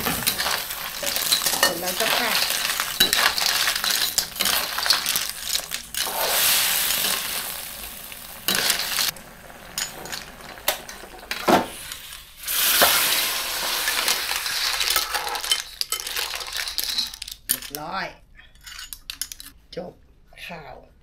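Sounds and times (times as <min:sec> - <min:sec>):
clams sizzling in a pan: 0:00.0 - 0:17.4
shells clinking against pan: 0:00.1 - 0:06.1.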